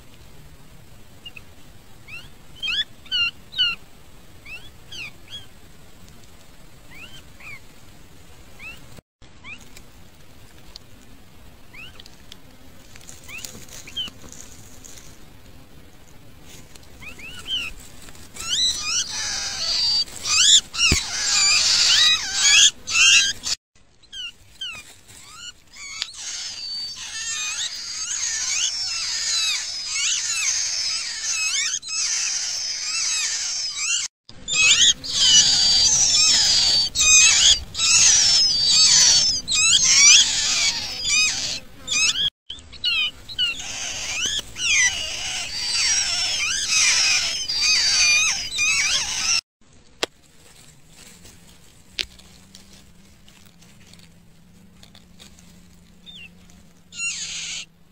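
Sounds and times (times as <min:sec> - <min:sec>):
nestlings cheeping and squeaking: 0:17.0 - 0:49.4, 0:54.8 - 0:57.7.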